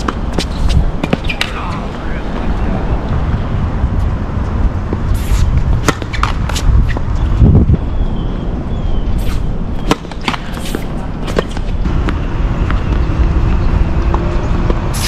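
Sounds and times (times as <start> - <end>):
tennis balls hit and bouncing: 0.0 - 2.6, 4.4 - 7.4, 9.2 - 15.0
steady low rumble: 0.0 - 15.0.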